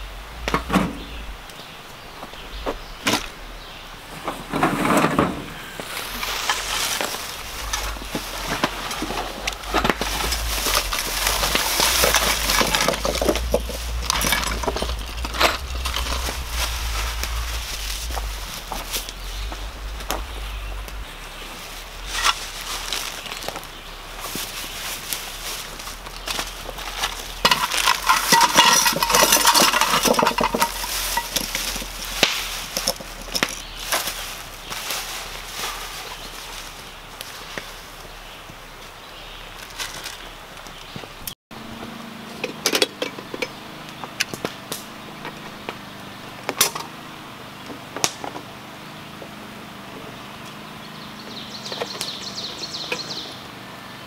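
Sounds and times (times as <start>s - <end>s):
plastic bag crinkling: 5.9s - 36.9s.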